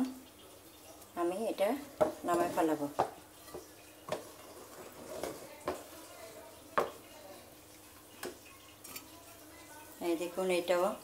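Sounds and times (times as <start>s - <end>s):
frying pan and utensils knocking: 1.9s - 7.2s, 7.8s - 9.7s.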